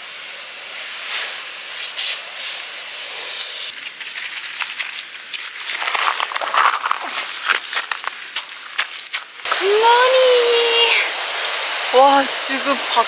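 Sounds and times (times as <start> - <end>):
sharp crackles: 3.7 - 9.5
heavy rain pouring: 9.4 - 13.0.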